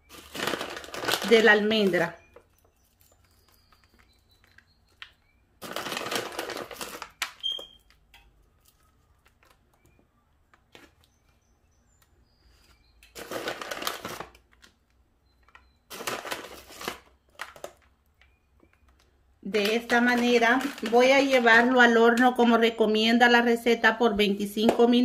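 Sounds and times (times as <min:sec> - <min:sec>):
plastic bag crinkling: 0:00.0 - 0:09.8, 0:12.6 - 0:21.9.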